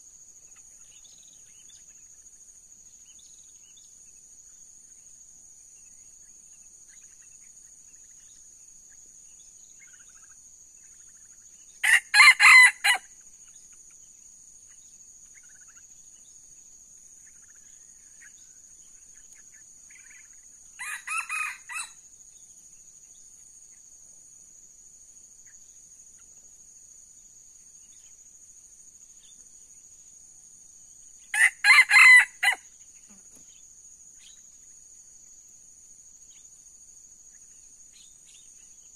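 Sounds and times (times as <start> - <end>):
roosters crowing: 11.8 - 13.1, 20.8 - 22.1, 31.3 - 32.6
high-pitched insect drone: 17.2 - 22.2.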